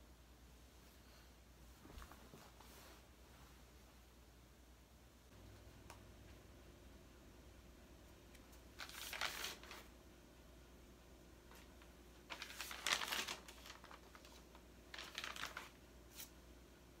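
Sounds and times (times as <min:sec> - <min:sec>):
paper pages rustling: 0:08.3 - 0:09.9, 0:11.5 - 0:16.3.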